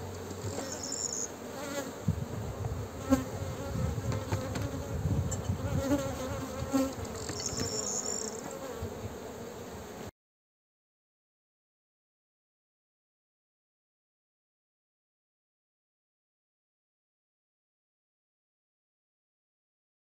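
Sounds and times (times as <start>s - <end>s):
honeybees buzzing: 0.0s - 10.1s.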